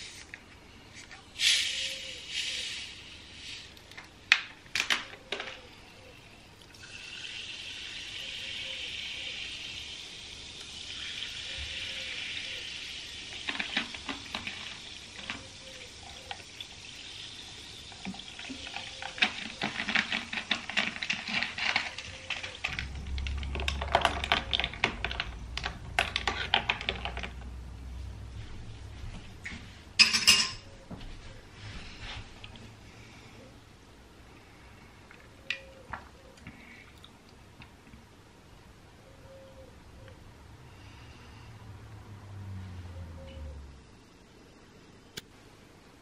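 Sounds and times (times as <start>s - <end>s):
sparkling water pouring: 6.6s - 23.8s
fizzing and crackling: 6.6s - 27.5s
spoon clinking against glass: 30.0s - 30.6s.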